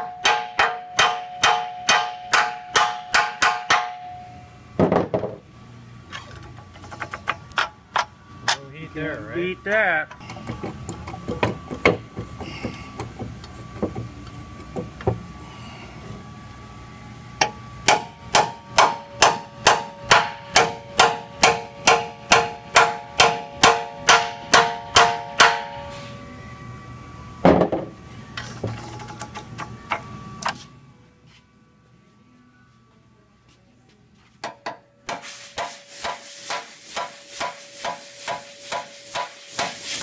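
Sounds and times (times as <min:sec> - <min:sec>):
hammer ringing on steel: 0:00.0 - 0:04.4, 0:17.4 - 0:26.0.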